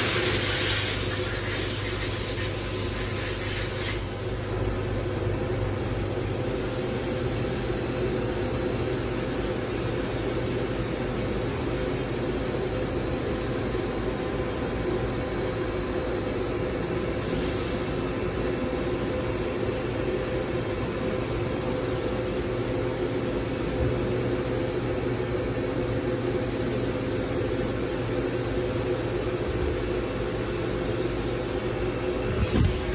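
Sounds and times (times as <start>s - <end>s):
machine axis drives humming: 31.4s - 32.9s.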